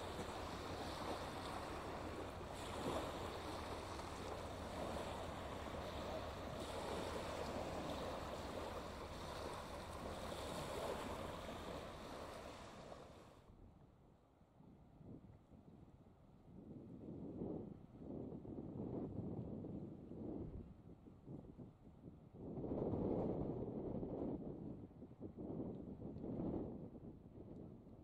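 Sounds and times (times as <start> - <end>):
waves on shingle beach: 0.0 - 13.4.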